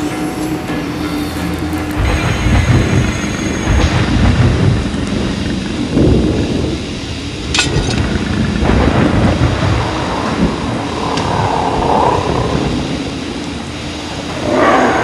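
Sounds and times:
rain hiss: 0:00.0 - 0:15.0
low thunder rumbling: 0:01.9 - 0:15.0
sharp thunder crack: 0:02.0 - 0:13.3.

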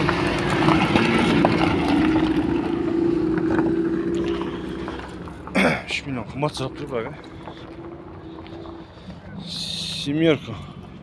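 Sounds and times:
vehicle engine droning: 0:00.0 - 0:11.0.

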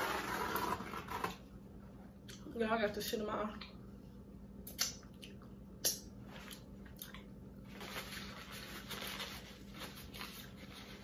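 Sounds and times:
paper towel rustling: 0:07.6 - 0:11.0.

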